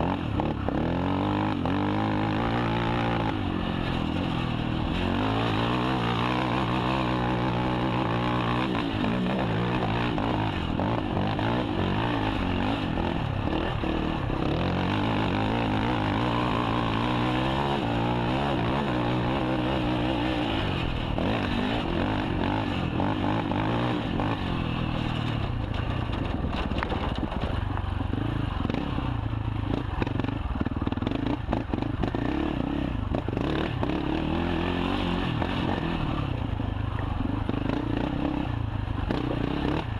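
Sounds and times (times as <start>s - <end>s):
quad engine revving: 0.0s - 27.5s, 28.1s - 36.4s, 37.2s - 39.9s
knocks and clatter: 25.0s - 28.8s.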